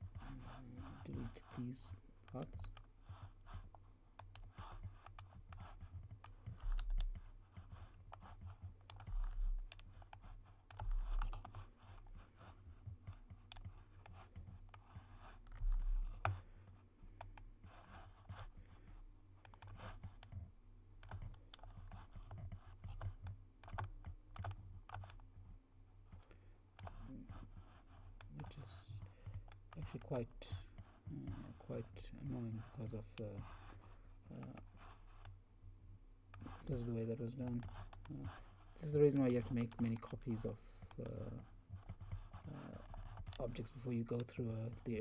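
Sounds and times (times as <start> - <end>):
low electrical hum: 0.0 - 45.0
mouse clicks: 39.1 - 41.2.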